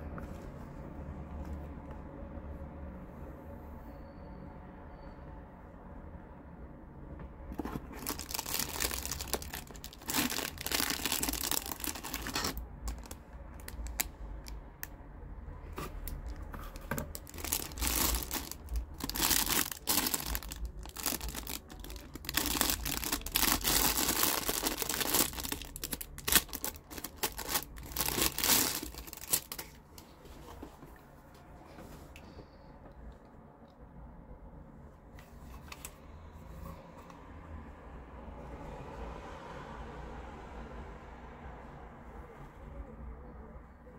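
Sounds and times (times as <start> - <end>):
plastic wrap crinkling and tearing: 7.6 - 14.6, 15.8 - 29.8.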